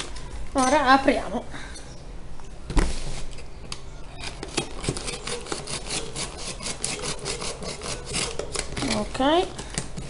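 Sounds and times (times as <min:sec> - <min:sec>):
utility knife cutting cardboard: 0:04.3 - 0:09.2.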